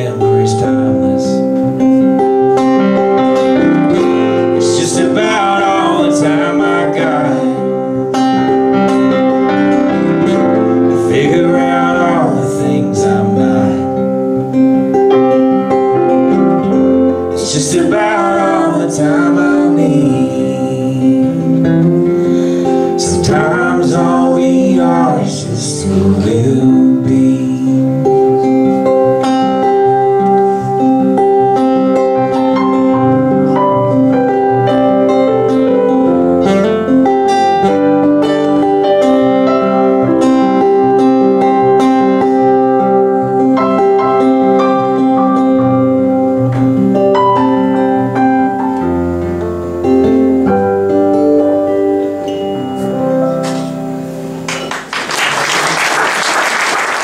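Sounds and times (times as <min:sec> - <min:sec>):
acoustic guitar and keyboard music: 0:00.0 - 0:57.0
audience applause: 0:54.5 - 0:57.0.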